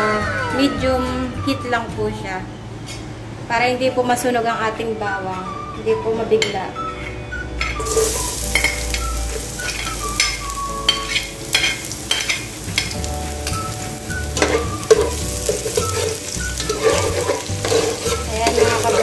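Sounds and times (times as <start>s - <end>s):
garlic sizzling in oil: 7.8s - 19.0s
metal spoon scraping and clicking: 9.6s - 13.0s, 14.4s - 19.0s.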